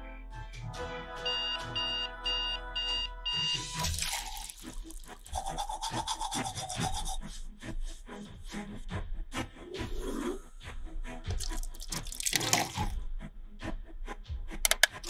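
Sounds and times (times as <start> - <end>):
cartoon background music: 0.0 - 15.0
brush scrubbing: 3.9 - 7.3, 11.4 - 13.0.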